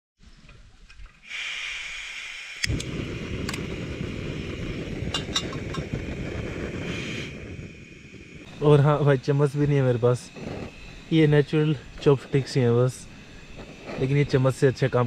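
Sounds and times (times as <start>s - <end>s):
gas flame rushing: 1.2s - 15.0s
gas hissing from burner: 1.2s - 15.0s
metal pot clinking on burner: 5.2s - 5.9s.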